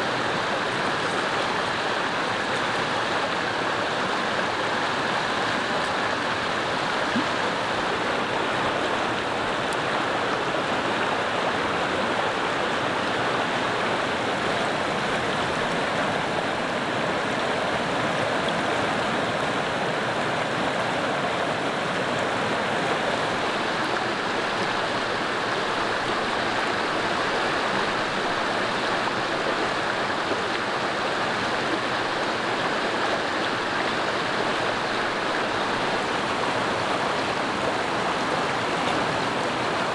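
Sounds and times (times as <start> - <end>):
river rushing over rocks: 0.0 - 39.9.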